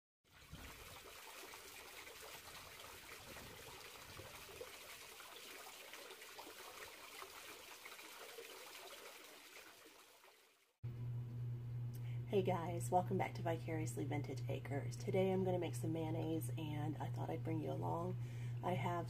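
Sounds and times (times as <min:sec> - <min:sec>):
fountain water splashing and trickling: 0:00.3 - 0:10.7.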